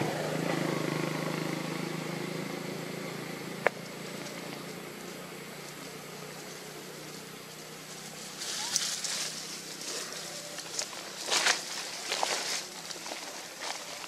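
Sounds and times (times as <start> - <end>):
low engine hum: 0.0 - 14.0.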